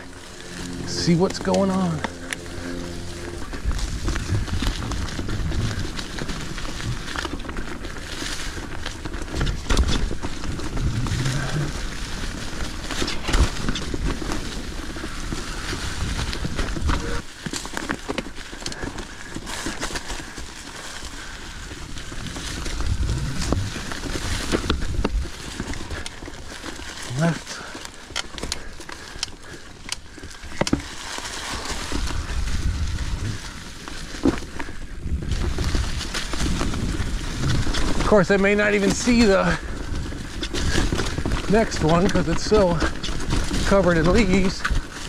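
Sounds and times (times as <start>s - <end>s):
low rumble: 0.0s - 17.3s, 21.1s - 27.5s, 31.5s - 38.3s
bike knocking and rattling: 0.0s - 45.0s
tyres crackling through leaves: 0.0s - 45.0s.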